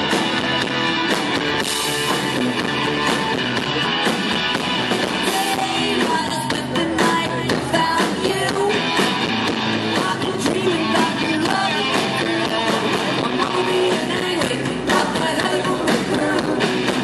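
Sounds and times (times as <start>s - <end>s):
bass guitar: 0.0s - 17.0s
drums: 0.0s - 17.0s
electric guitars: 0.0s - 17.0s
woman singing: 5.2s - 8.9s, 9.9s - 16.8s.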